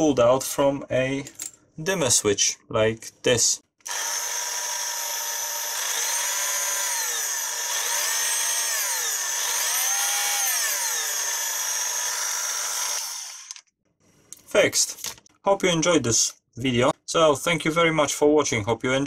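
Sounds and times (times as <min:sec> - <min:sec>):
mini drill motor whining: 0:03.9 - 0:13.6.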